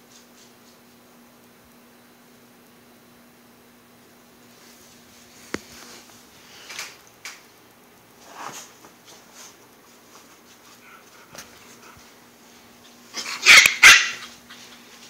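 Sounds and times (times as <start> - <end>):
dog barking loudly: 13.2 - 14.4.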